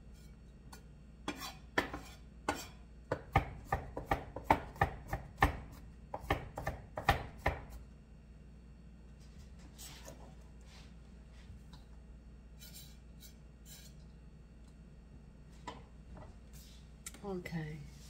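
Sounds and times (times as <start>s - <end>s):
knife chopping on wooden board: 1.3s - 7.8s.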